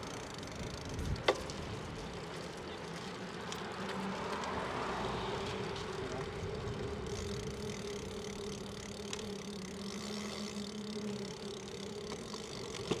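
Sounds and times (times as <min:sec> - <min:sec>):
bicycle hum with low tones: 0:00.0 - 0:13.0
wind noise: 0:00.6 - 0:01.9.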